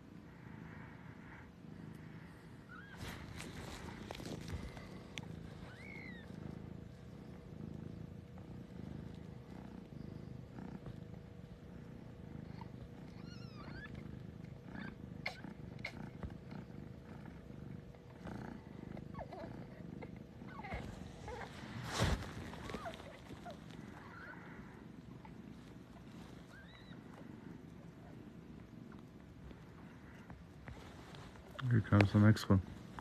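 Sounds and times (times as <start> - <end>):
cat purring: 0.0 - 33.0
kittens mewing: 2.7 - 6.6, 12.5 - 16.3, 18.8 - 25.3.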